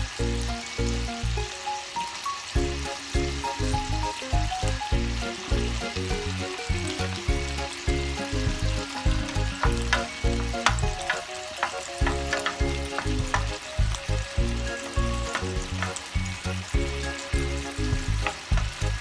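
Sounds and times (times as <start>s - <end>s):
fish sizzling in a pan: 0.0s - 19.0s
spoon clicking against pan: 9.6s - 13.6s.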